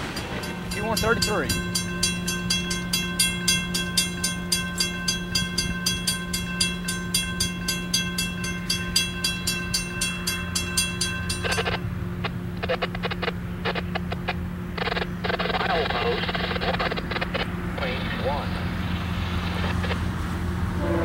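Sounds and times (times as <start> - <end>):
crossing bell ringing rapidly: 0.0 - 11.9
steady low hum: 0.0 - 21.0.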